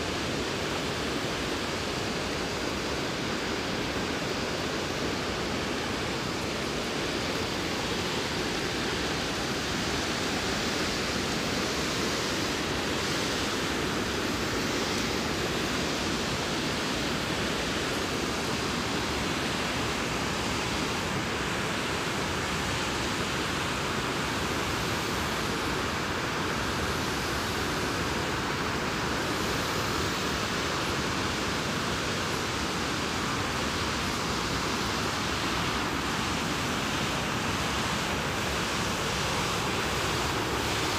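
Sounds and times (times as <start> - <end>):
water rushing over spillway: 0.0 - 40.9.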